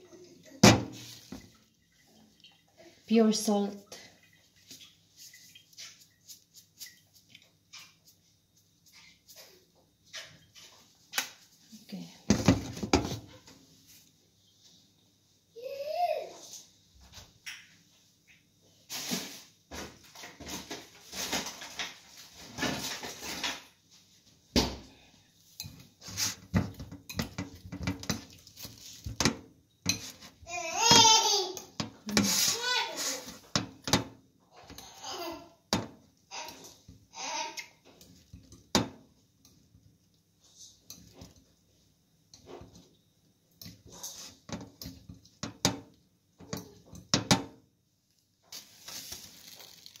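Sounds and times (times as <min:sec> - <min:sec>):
bowl clinking and scraping: 0:25.5 - 0:31.0, 0:48.5 - 0:50.0
brushing rustle: 0:26.0 - 0:26.4, 0:32.2 - 0:33.4, 0:48.5 - 0:50.0.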